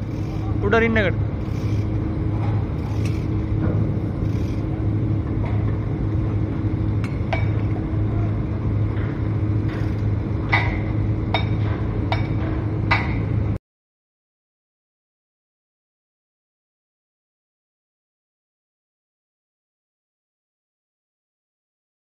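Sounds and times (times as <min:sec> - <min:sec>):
low machinery hum: 0:00.0 - 0:13.6.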